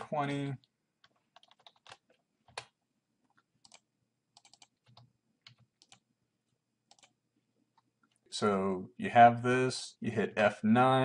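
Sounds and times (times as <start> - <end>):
computer keyboard keystrokes: 1.0 - 3.8, 4.4 - 6.0, 6.9 - 7.1.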